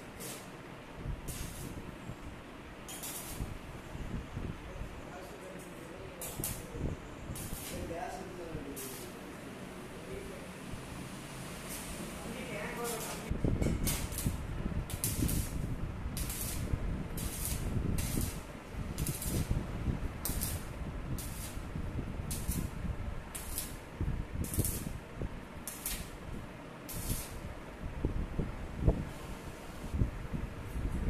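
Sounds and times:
welding arc hissing: 0.0 - 2.0, 2.8 - 3.6, 5.2 - 10.4, 11.0 - 25.0, 25.6 - 26.3, 26.9 - 27.5.

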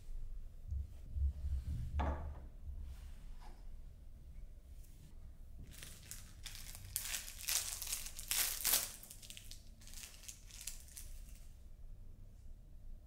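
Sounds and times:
packaging crinkling: 5.6 - 11.5.

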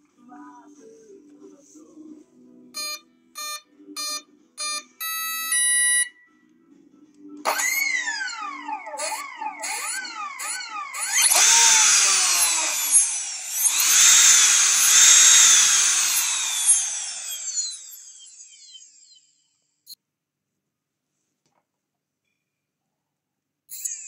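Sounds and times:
electric motor whining: 7.5 - 19.5.

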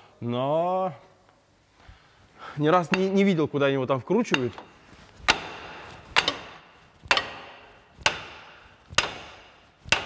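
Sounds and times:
hammer striking metal joint: 4.3 - 10.0.

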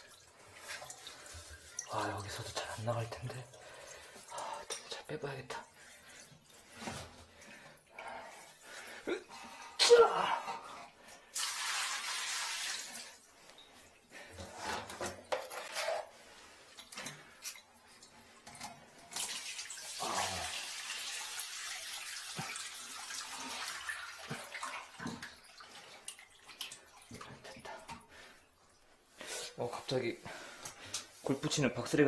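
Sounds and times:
water splashing and running: 0.0 - 9.0, 10.4 - 14.9, 16.5 - 32.0
knocks and scrapes: 14.4 - 16.1.

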